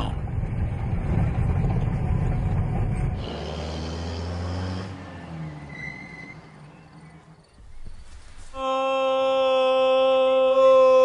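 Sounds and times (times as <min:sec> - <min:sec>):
truck engine running: 0:00.0 - 0:08.4
faint outdoor background: 0:00.0 - 0:11.0.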